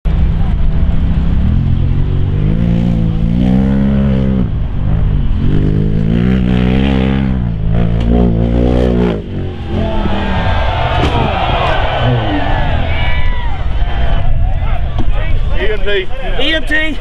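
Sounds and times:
utility vehicle engine revving: 0.1 - 13.0.

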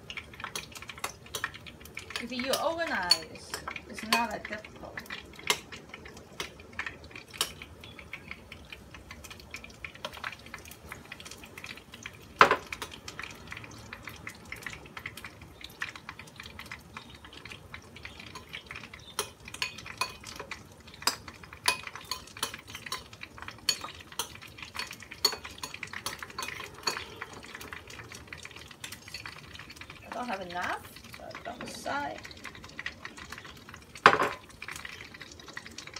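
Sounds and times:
metal spoon stirring in ceramic bowl: 0.4 - 4.6, 18.3 - 27.8, 28.5 - 30.1
spoon clinking against bowl: 23.7 - 27.2.

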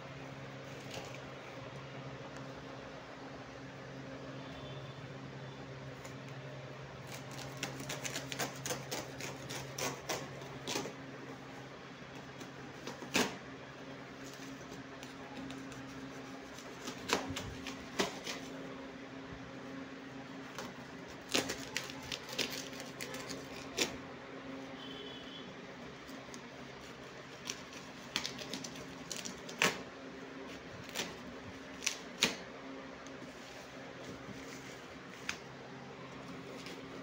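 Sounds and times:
knife ripping plastic wrapping: 7.0 - 11.0, 14.2 - 18.6, 20.5 - 24.0, 26.2 - 32.5
tape tearing: 7.0 - 11.0, 12.4 - 13.4, 14.2 - 18.5, 20.5 - 24.0, 26.1 - 29.9, 30.5 - 32.5.

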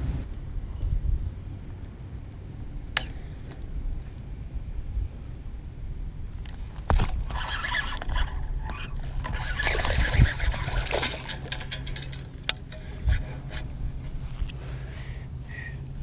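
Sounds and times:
fishing reel cranking: 7.3 - 13.4
fish splashing: 9.0 - 12.1.

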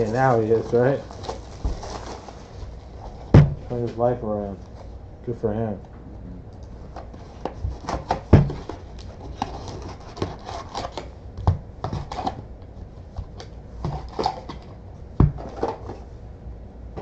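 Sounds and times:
packs rustling and crinkling: 0.0 - 4.8.

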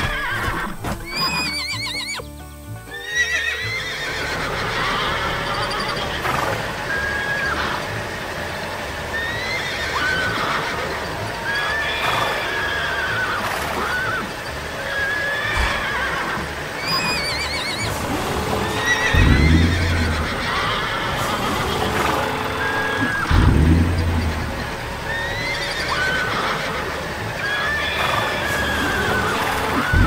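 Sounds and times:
horses whinnying: 0.0 - 2.3, 2.9 - 30.0
low rumble: 15.5 - 30.0.

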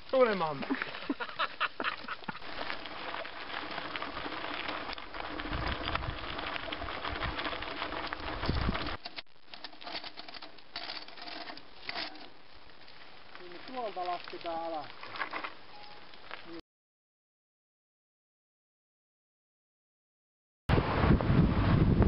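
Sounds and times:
bike tyres crunching over stones: 0.0 - 16.6
wind buffeting microphone: 3.3 - 9.0, 20.7 - 22.0.

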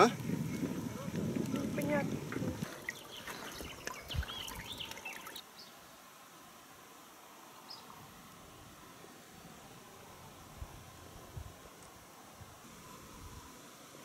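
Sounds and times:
faint riverside ambience hiss: 0.0 - 14.0
bird chirps: 2.8 - 5.7.

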